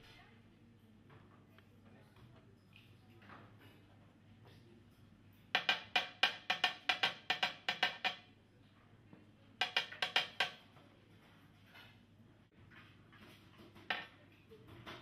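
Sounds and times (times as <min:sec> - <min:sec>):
metal cup knocking on workbench: 0:05.5 - 0:08.2, 0:09.6 - 0:10.6.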